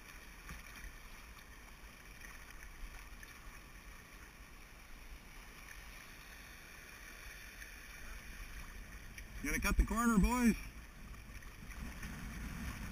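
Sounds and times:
river water rushing and splashing: 0.0s - 12.9s
wind rumble on microphone: 11.6s - 12.9s.

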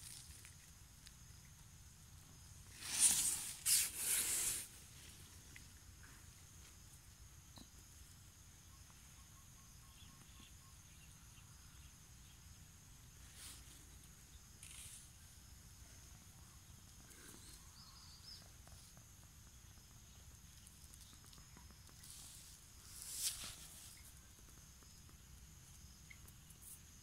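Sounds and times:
soft rustles: 22.0s - 24.2s.

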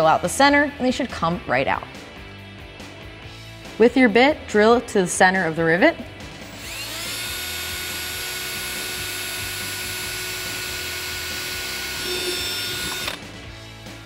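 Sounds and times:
cordless drill whine: 6.5s - 13.3s.

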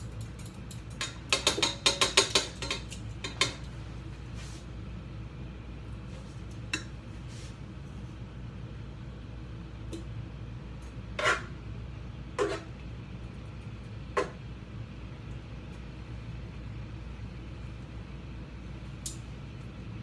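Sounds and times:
steady low hum: 0.0s - 20.0s
utensil clinking on metal pot: 0.2s - 3.6s.

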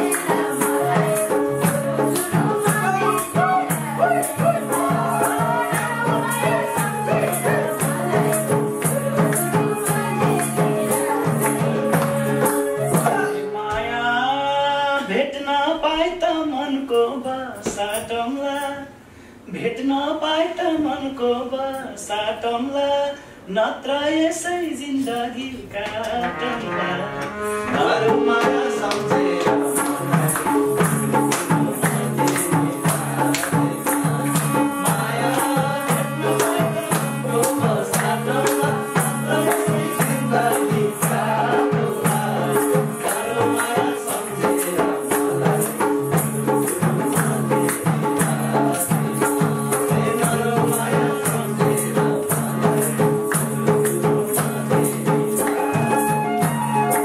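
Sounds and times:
hand drum beat: 0.0s - 13.4s, 27.8s - 57.0s
folk band playing: 0.0s - 13.6s, 26.2s - 50.6s, 53.2s - 57.0s.

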